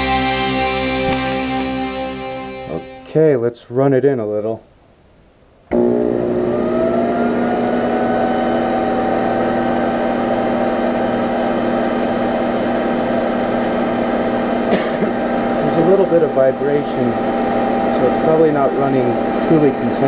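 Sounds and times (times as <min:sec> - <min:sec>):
lathe motor whining: 0:05.7 - 0:20.0.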